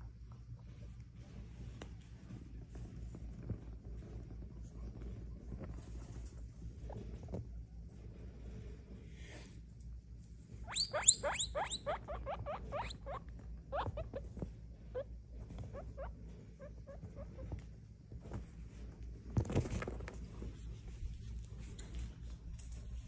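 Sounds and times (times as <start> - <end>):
guinea pig squeaking: 10.6 - 17.6.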